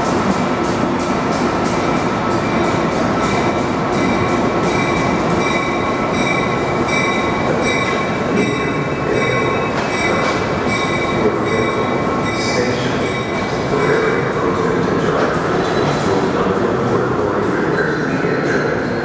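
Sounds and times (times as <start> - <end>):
train wheels rumbling on rail: 0.0 - 19.0
high-pitched wheel squeal: 4.9 - 13.4.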